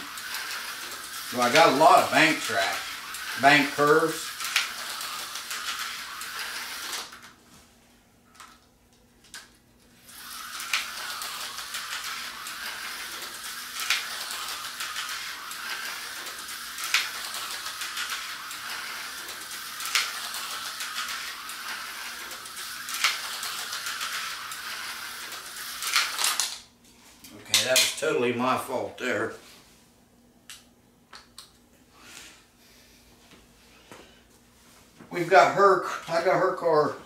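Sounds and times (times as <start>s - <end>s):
slot car motor whirring: 0.0s - 7.4s, 10.0s - 26.6s.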